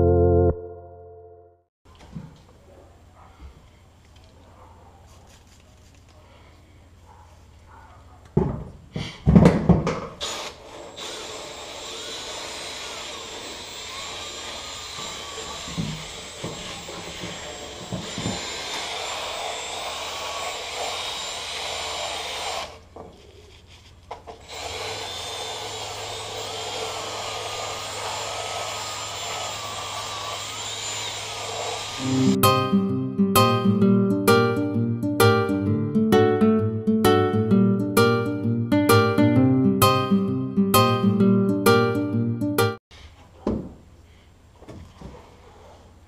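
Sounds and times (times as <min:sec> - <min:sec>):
drill brush scrubbing plastic: 0:24.5 - 0:32.1.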